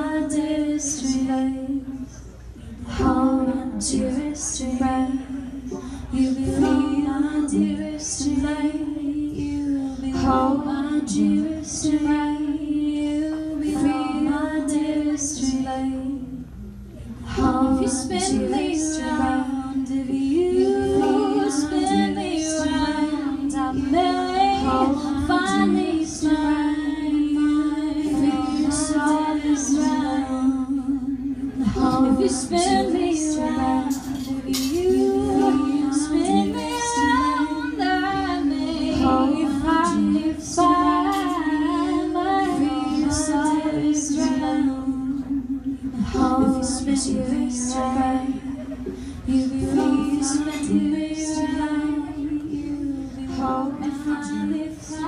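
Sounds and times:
steady held low note: 0.0 - 55.0
woman singing: 0.0 - 55.0.

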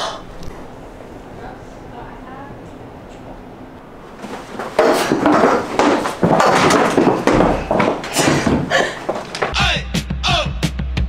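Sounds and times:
loud banging and clattering: 4.2 - 9.5.

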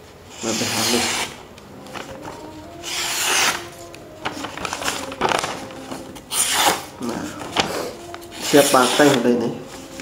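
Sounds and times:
knife slicing through paper: 2.8 - 3.8.

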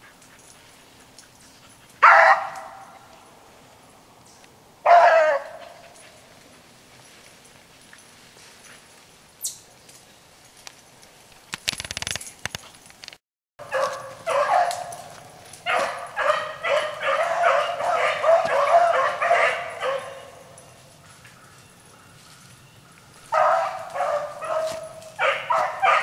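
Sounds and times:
hounds yelping and baying: 0.0 - 3.2, 4.8 - 7.2, 13.6 - 26.0
brief rustle: 9.8 - 13.2.

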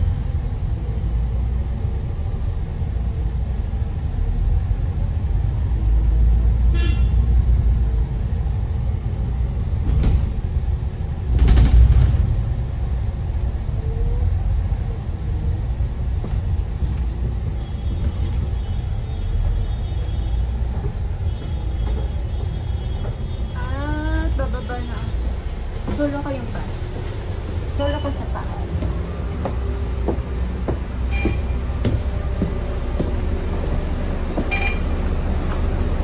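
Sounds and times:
bus engine rumble: 0.0 - 36.0
high beep: 31.1 - 31.6, 34.5 - 34.9.

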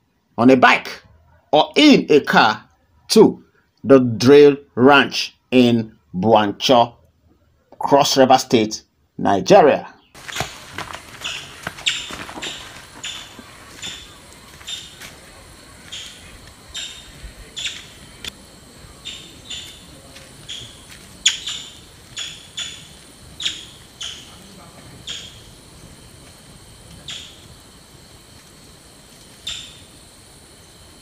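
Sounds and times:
sharp high-pitched animal calls: 10.2 - 25.5, 26.9 - 27.5, 29.4 - 30.0
faint steady high hum: 10.2 - 31.0.

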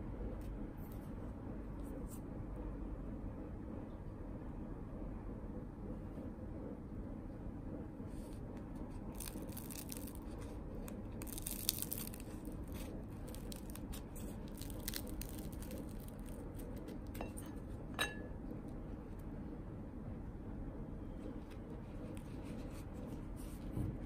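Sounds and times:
toast crunching while chewed: 9.1 - 17.6.

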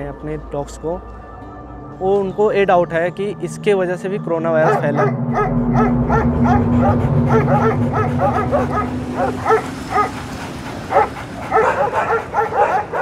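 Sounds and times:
dogs barking: 4.6 - 13.0
low engine hum: 5.0 - 13.0.

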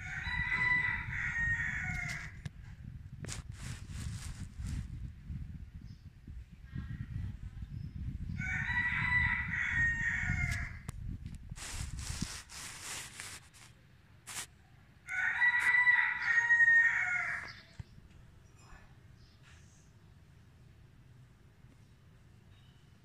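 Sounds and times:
rooster crowing: 0.0 - 2.4, 8.4 - 10.9, 15.1 - 17.6.

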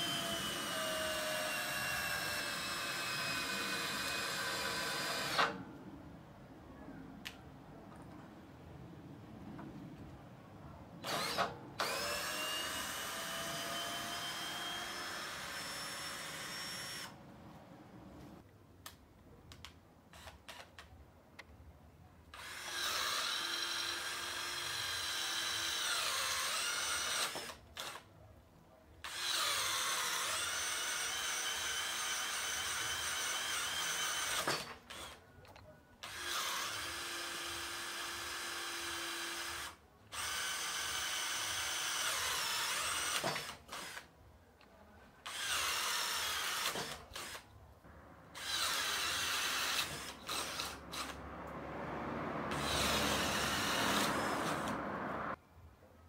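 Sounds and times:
cordless drill whining: 0.0 - 5.6, 11.0 - 17.2, 22.4 - 28.1, 29.0 - 35.2, 36.0 - 44.1, 45.2 - 47.4, 48.4 - 51.2, 52.5 - 54.9.

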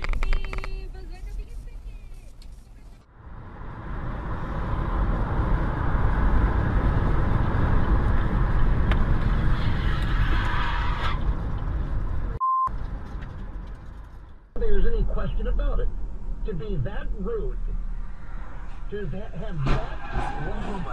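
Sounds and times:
car road and engine noise: 0.0 - 20.9
short electronic beep: 12.4 - 12.7.

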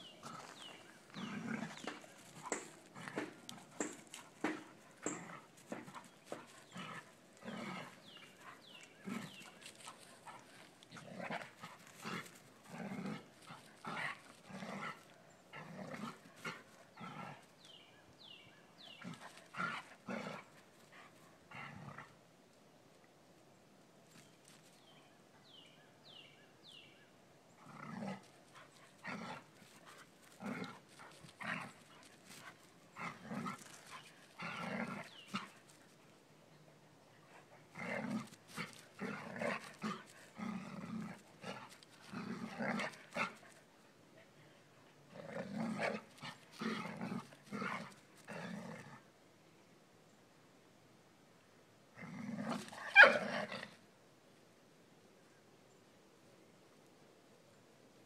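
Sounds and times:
dogs barking and growling: 0.0 - 17.6, 19.0 - 22.2, 27.6 - 35.7, 37.3 - 43.6, 45.0 - 49.1, 52.0 - 53.8.

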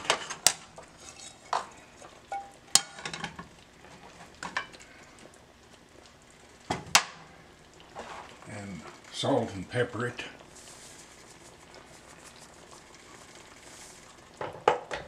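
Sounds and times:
faint sizzle: 0.0 - 15.0
spatula stirring food in wok: 0.4 - 3.2, 10.4 - 14.3.

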